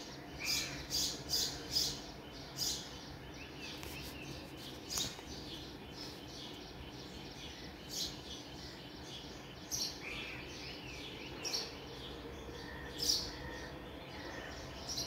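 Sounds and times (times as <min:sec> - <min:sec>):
birds chirping: 0:00.0 - 0:15.0
steady background hiss: 0:00.0 - 0:15.0.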